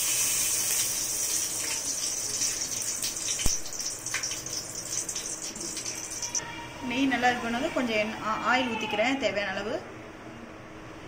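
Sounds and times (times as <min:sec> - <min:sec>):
ghee sizzling in a pot: 0:00.0 - 0:06.4.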